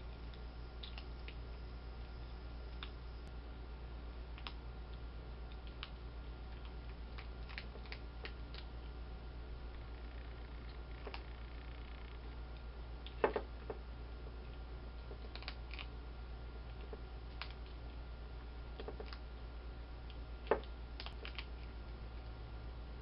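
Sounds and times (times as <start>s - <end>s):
steady low hum: 0.0s - 23.0s
animal crunching dry food: 4.4s - 8.9s, 9.7s - 13.4s, 14.4s - 16.0s, 16.7s - 18.0s, 20.5s - 21.8s.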